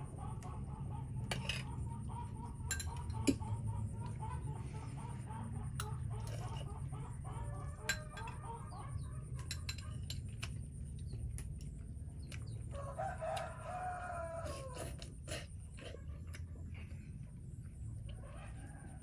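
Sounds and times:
chicken clucks: 0.0 - 19.0
metal spoon clicking on bowl: 9.3 - 10.5
rooster crowing: 12.7 - 15.1.

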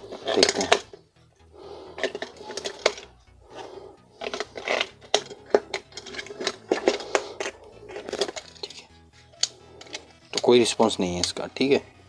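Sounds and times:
plastic toy being handled: 0.0 - 1.0, 1.9 - 10.5.

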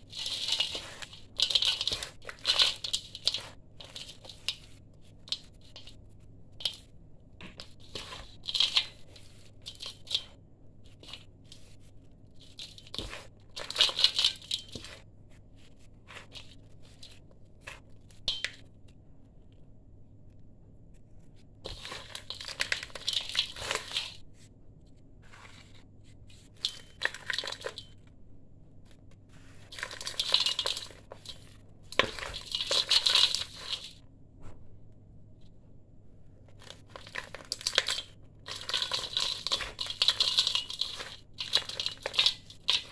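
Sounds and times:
grains falling onto steel: 0.0 - 6.0, 7.4 - 11.7, 12.4 - 15.0, 21.7 - 24.2, 26.6 - 28.0, 29.7 - 34.0, 36.6 - 42.9
dry mix crunched by hand in steel bowl: 0.0 - 18.7, 21.6 - 24.3, 25.2 - 28.0, 29.4 - 34.1, 36.5 - 42.9.

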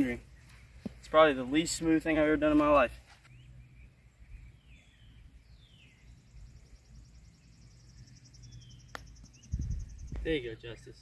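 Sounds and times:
faint bird chirps: 3.2 - 11.0.

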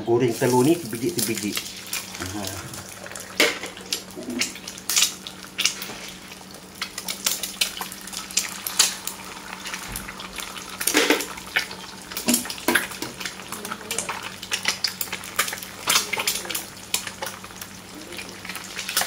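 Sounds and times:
steady low hum: 0.0 - 18.9
oil spattering pops and crackles: 3.3 - 5.9.

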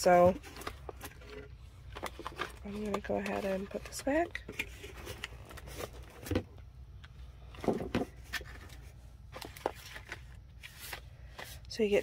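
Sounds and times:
low steady hum: 0.0 - 12.0
cardboard boxes knocking and rustling: 7.6 - 8.6.

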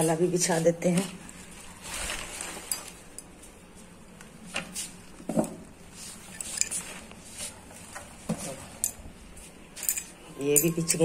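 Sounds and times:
household objects clinking and knocking: 9.8 - 11.0.

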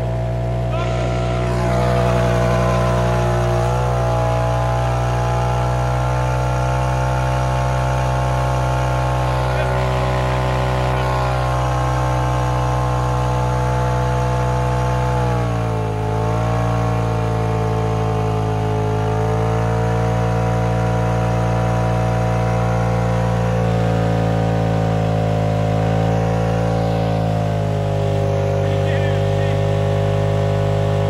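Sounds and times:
engine at high revs: 0.0 - 31.0
tires spinning in place: 0.0 - 31.0.

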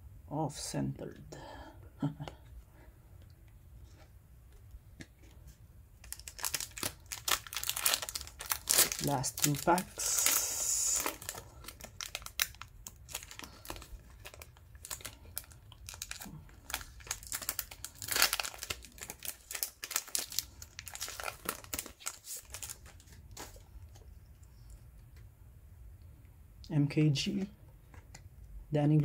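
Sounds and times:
foil wrapper crinkling and tearing: 6.0 - 23.6.

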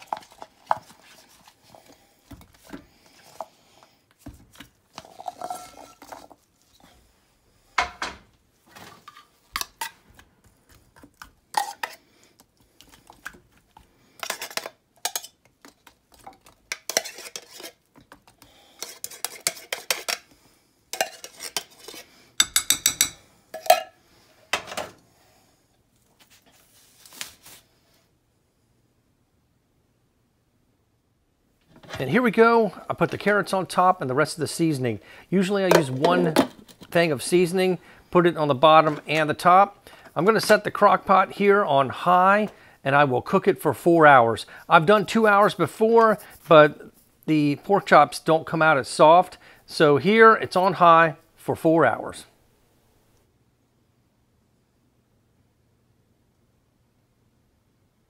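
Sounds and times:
metal spoon scraping ceramic: 5.0 - 6.3, 16.7 - 17.9, 18.8 - 20.2, 20.9 - 24.0.

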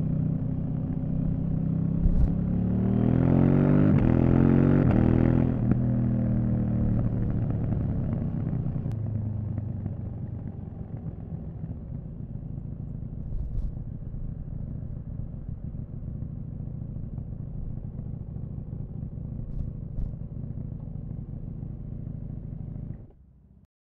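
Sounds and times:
motorcycle engine running: 0.0 - 23.6.

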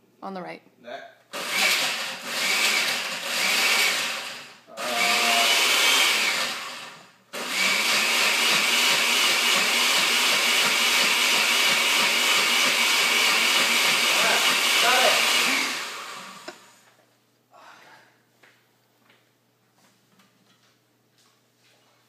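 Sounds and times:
blender whining: 1.3 - 16.8.

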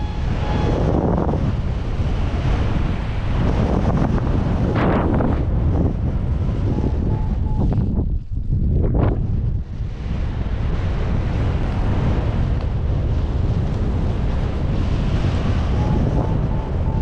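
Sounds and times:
wind buffeting microphone: 0.0 - 17.0
variometer short beeps: 6.8 - 7.9.

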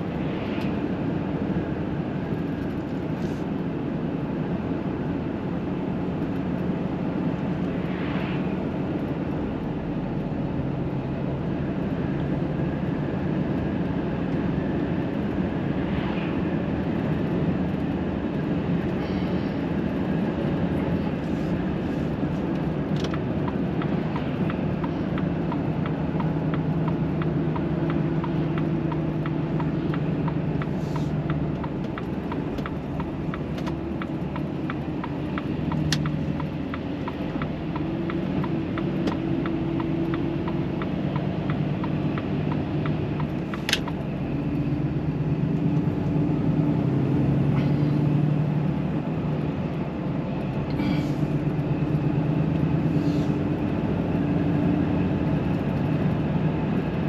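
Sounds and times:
road noise: 0.0 - 57.0
truck diesel engine drone: 0.0 - 57.0
regular ticking: 23.0 - 44.0.

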